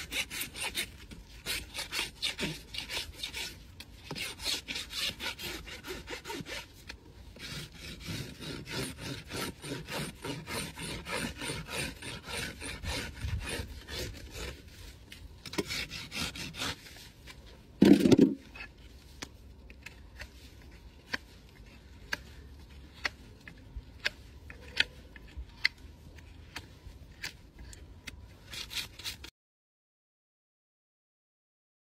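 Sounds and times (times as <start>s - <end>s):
hoof rasp strokes: 0.0s - 17.6s.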